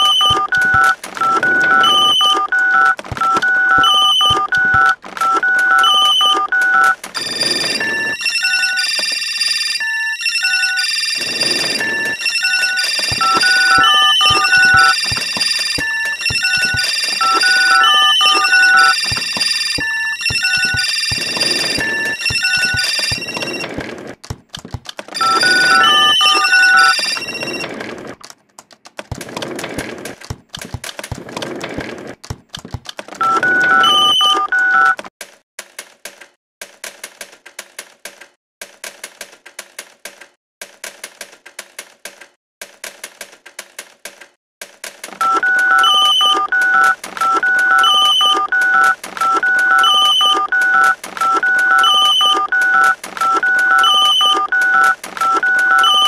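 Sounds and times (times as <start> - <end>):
telephone ringtone beeping: 0.0 - 23.7, 25.2 - 27.7, 33.2 - 35.0, 45.2 - 56.0
quick irregular clicks: 35.0 - 45.3.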